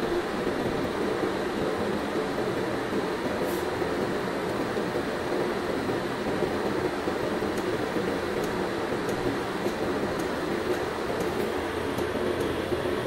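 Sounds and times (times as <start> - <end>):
equipment fans whirring: 0.0 - 13.0.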